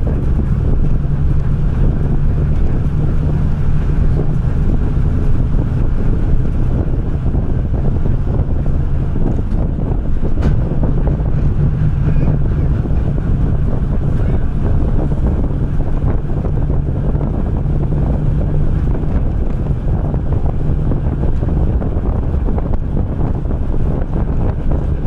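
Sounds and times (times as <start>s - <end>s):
tyres on road: 0.0s - 25.0s
vehicle engine drone: 0.0s - 25.0s
wind buffeting microphone: 0.0s - 25.0s.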